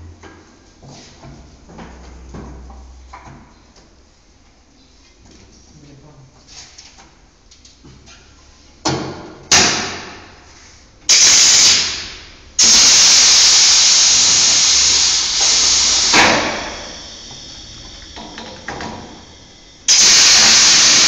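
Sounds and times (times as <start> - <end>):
compressed air hissing blasts: 11.1 - 21.0
sharp air burst: 11.1 - 21.0.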